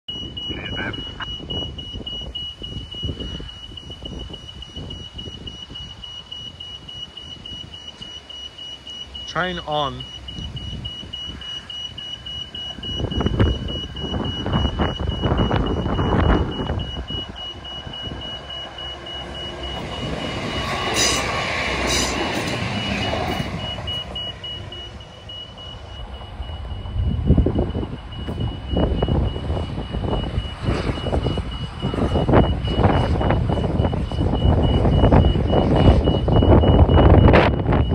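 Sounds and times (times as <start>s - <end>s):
high electronic warning tone: 0.1s - 37.9s
diesel railcar passing: 8.8s - 36.2s.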